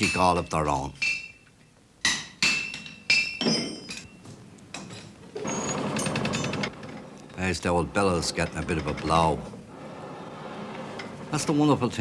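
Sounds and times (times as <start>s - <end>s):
forge bellows rushing and rattling: 5.4s - 12.0s.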